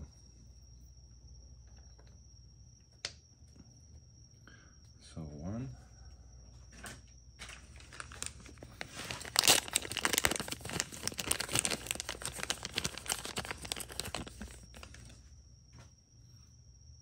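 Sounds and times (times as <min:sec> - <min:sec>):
crinkling and rustling: 0:06.6 - 0:15.9.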